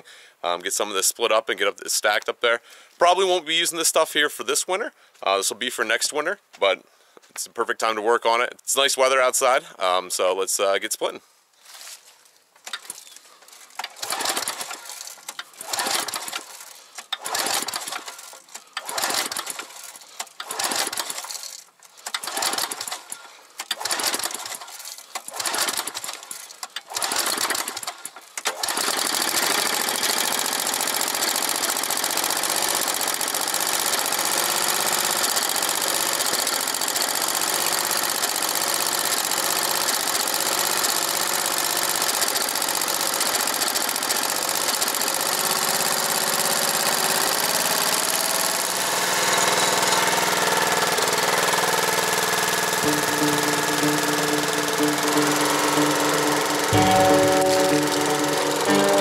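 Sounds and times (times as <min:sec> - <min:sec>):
recoil starter pulls: 0:12.6 - 0:59.0
small gas engine running: 0:13.7 - 0:59.0.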